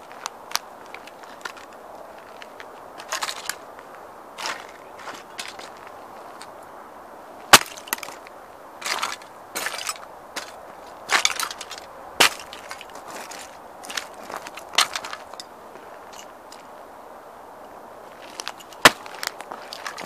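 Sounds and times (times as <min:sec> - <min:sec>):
gravel crunching underfoot: 0:00.0 - 0:20.0.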